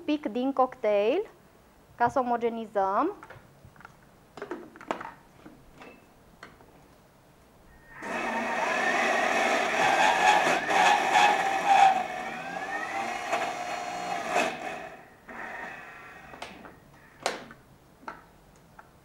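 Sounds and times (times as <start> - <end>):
food processor motor whining: 7.9 - 16.6.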